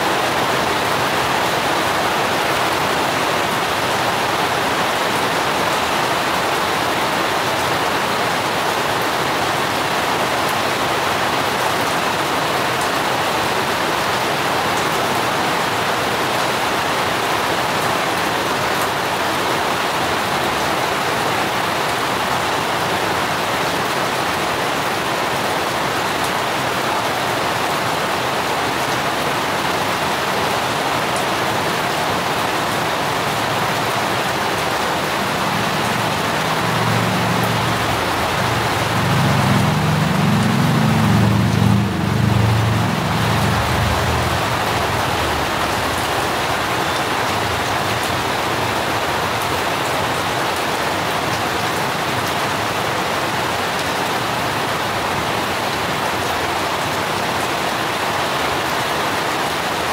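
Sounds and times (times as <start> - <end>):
steady rain: 0.0 - 59.9
low rumble: 36.8 - 46.7.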